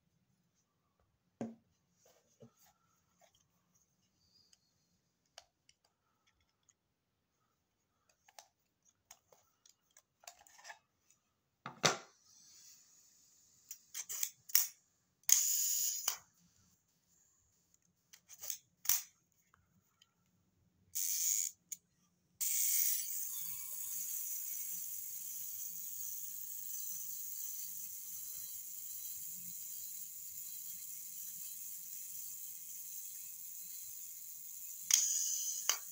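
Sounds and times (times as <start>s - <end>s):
small metal clicks of camera: 14.0s - 16.2s, 34.8s - 35.9s.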